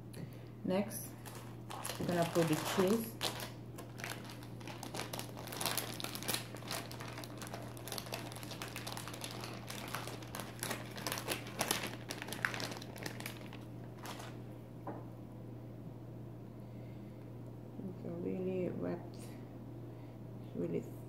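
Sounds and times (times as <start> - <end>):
plastic package crinkling: 1.1 - 14.4.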